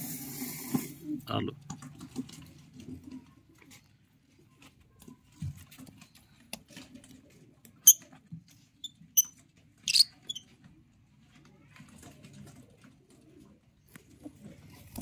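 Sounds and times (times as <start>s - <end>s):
parakeets high-pitched calls: 9.9s - 10.4s.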